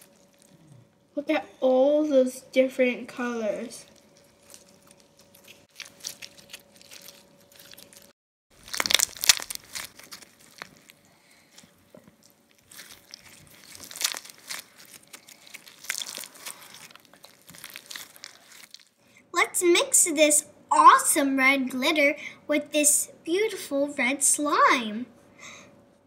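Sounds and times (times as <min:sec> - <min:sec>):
slime crackling as squeezed: 0:00.0 - 0:00.6, 0:03.8 - 0:19.0.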